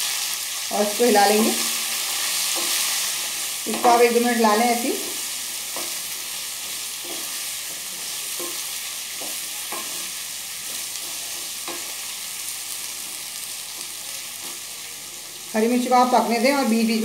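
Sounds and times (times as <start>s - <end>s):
food sizzling in hot oil: 0.0s - 17.0s
spatula scraping pan: 1.4s - 12.0s.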